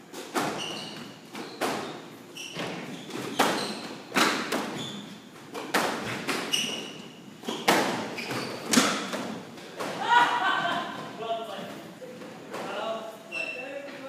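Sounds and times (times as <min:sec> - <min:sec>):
shoes squeaking on wooden floor: 0:00.1 - 0:10.0, 0:10.9 - 0:14.0
squash ball hits echoing: 0:05.5 - 0:06.5, 0:07.5 - 0:11.1.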